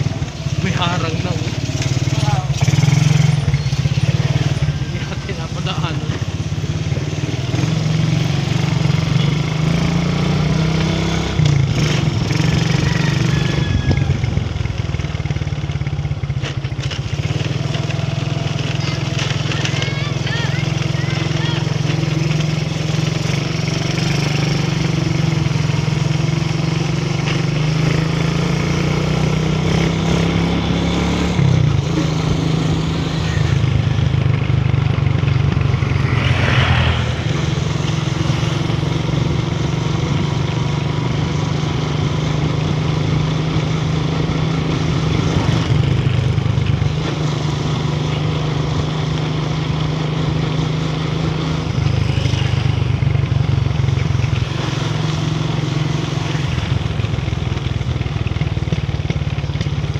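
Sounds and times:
motorcycle engine running: 0.0 - 59.9
wind and road noise: 0.0 - 59.9
short rushing noise: 35.5 - 38.5.

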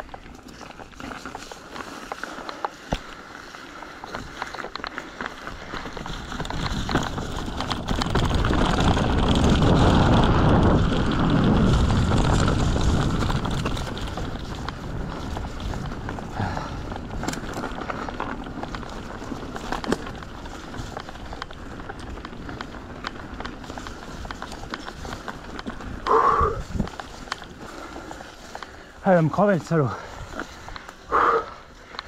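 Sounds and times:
bike ticks and rattles: 0.0 - 32.0
wind noise on microphone: 5.4 - 27.9.

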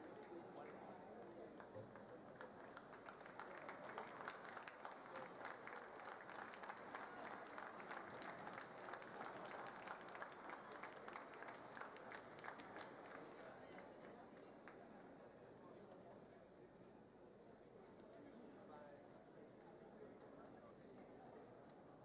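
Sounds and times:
faint audience applause: 0.0 - 15.2.

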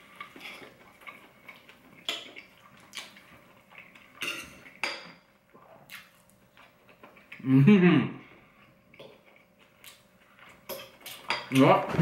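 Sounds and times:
cutlery scraping a plate: 0.2 - 0.8, 4.1 - 5.2.

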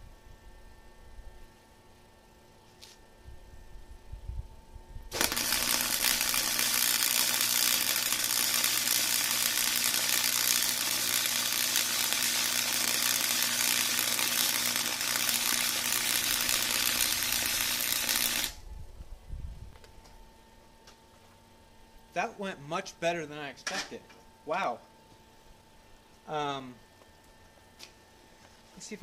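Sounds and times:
steady low hum: 0.0 - 29.0
welding arc crackling: 5.1 - 18.6.

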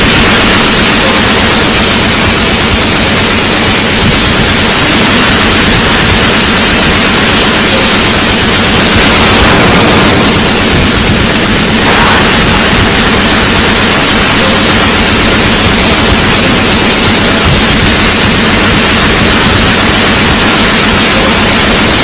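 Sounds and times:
loud distorted noise: 0.0 - 22.0
high whistle: 0.8 - 13.3.

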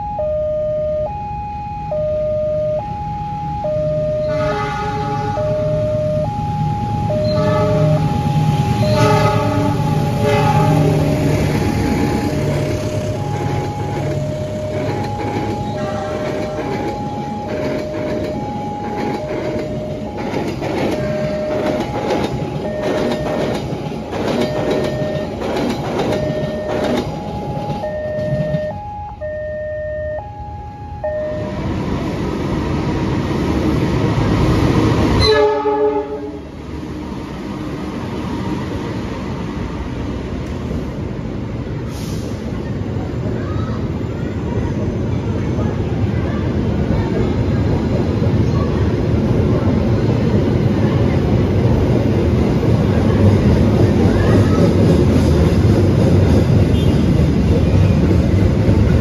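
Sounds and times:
level crossing alarm chimes: 0.0 - 10.2, 11.0 - 32.0
diesel locomotive engine hum: 0.0 - 59.0
diesel locomotive rumbling: 0.0 - 59.0
train wheels clattering: 8.6 - 28.7.

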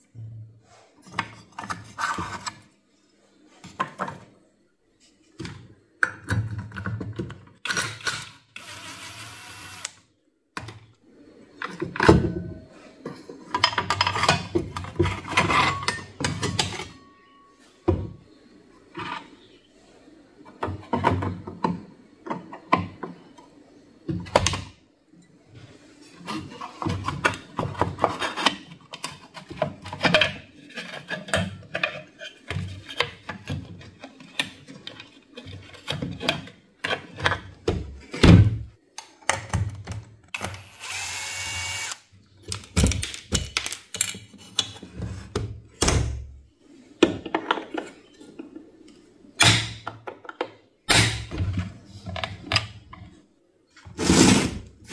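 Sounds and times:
small power tool whine: 8.6 - 10.0, 40.4 - 42.0.

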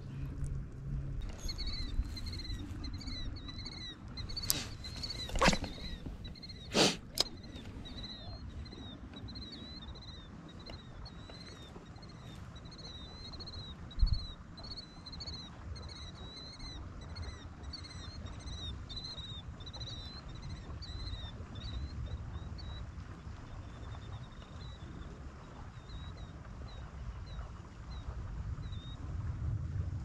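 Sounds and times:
bird chirping: 1.2 - 15.2.

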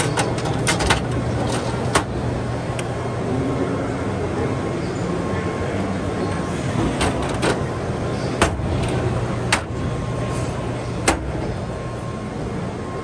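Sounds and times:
metal toolbox drawers clacking: 0.0 - 2.1
steady background din: 0.0 - 13.0.

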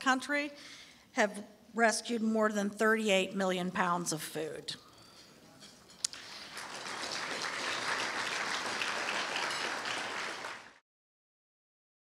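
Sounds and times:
audience applause: 6.1 - 10.8.

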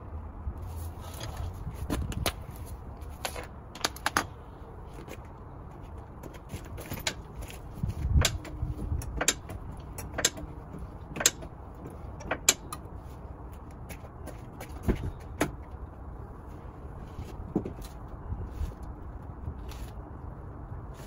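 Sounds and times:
sharp metallic clicks and knocks: 6.2 - 12.9.

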